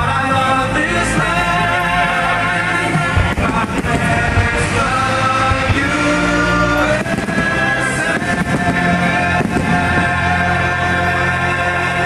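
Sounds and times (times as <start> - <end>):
loud music: 0.0 - 12.0
fireworks exploding: 2.9 - 11.3.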